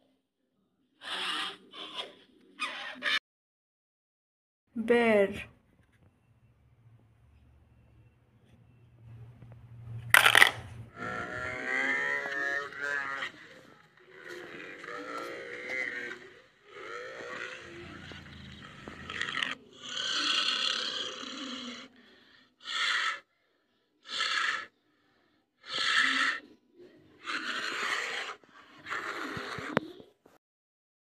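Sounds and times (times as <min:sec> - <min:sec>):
bears huffing and growling: 0:10.2 - 0:23.3, 0:24.0 - 0:30.2.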